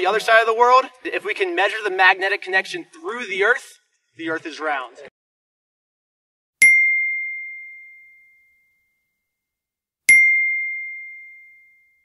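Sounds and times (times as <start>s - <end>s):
bell-like dings: 6.6s - 9.5s, 10.1s - 12.0s.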